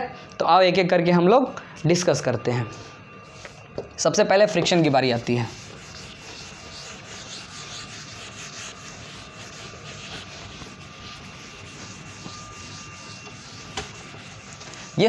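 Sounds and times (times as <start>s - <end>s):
scratchy writing on a board: 2.7s - 3.9s, 4.5s - 15.0s.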